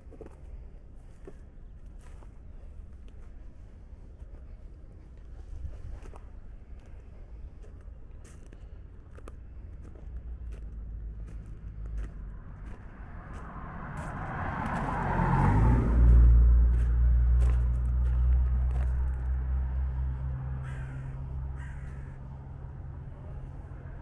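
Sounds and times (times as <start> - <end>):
low engine hum: 0.0 - 24.0
motor vehicle passing close: 10.8 - 24.0.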